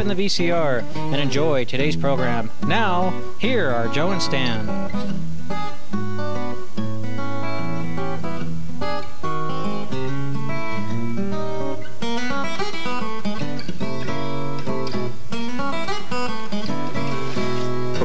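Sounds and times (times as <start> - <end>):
guitar-led theme music: 0.0 - 18.0.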